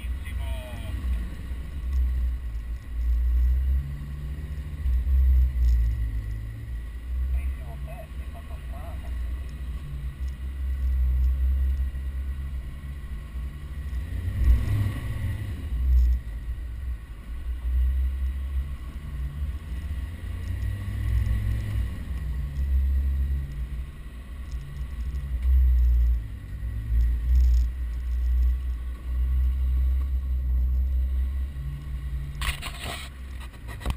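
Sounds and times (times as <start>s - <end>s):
engine rumbling and revving: 0.0s - 33.9s.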